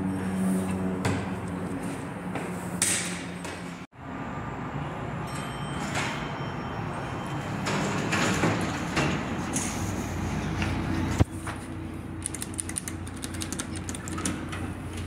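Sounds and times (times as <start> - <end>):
elevator doors sliding open: 5.2 - 11.2.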